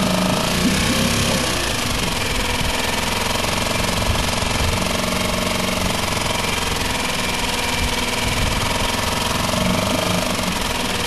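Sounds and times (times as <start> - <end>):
outboard motor idling: 0.0 - 11.0.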